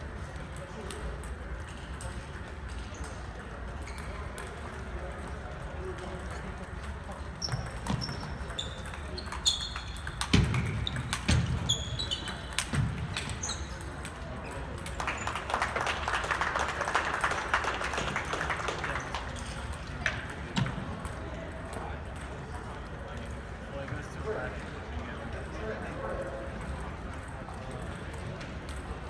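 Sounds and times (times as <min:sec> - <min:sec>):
chatter in large hall: 0:00.0 - 0:29.0
table tennis balls clicking: 0:00.4 - 0:23.4, 0:26.6 - 0:29.0
shoes squeaking on gym floor: 0:02.8 - 0:04.4, 0:07.4 - 0:15.2.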